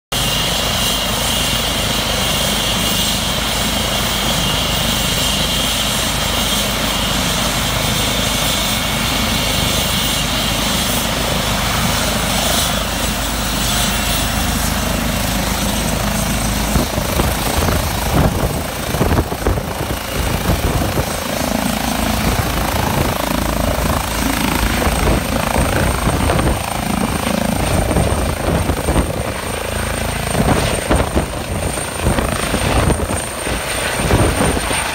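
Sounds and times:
helicopter rotor thrum: 0.2s - 34.9s
turbine whine: 0.2s - 34.9s
wind buffeting microphone: 14.4s - 34.9s.

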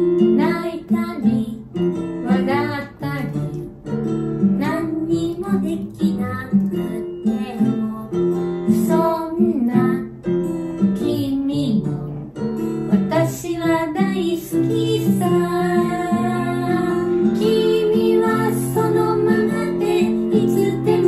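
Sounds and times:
strummed acoustic guitar: 0.0s - 21.0s
person singing: 4.6s - 10.1s, 12.9s - 21.0s.

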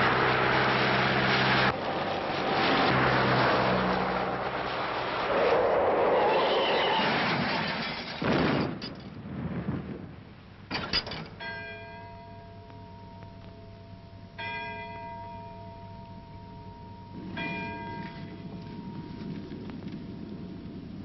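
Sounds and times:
rushing noise: 0.0s - 8.4s.

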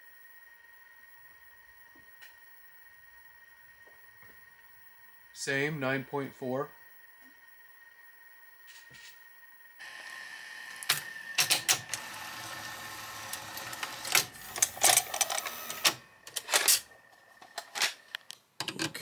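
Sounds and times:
tape transport whirring: 0.2s - 18.4s
mechanism clicks and clunks: 10.8s - 12.0s, 13.2s - 19.0s.

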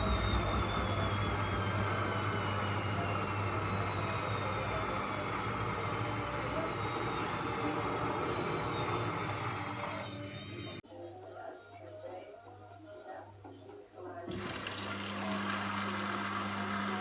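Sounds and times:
steady low hum: 0.0s - 10.8s
washing machine motor whining: 0.0s - 10.8s, 14.3s - 17.0s.

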